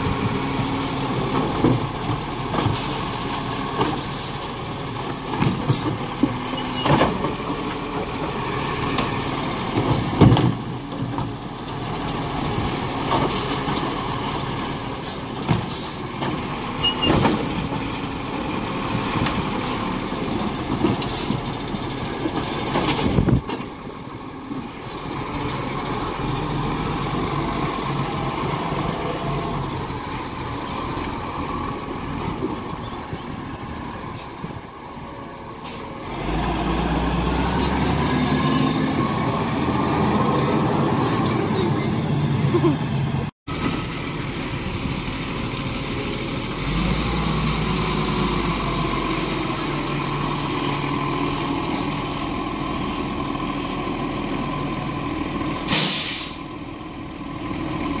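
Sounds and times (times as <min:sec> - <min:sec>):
garbage truck engine drone: 0:00.0 - 0:58.0
hisses: 0:55.5 - 0:56.4.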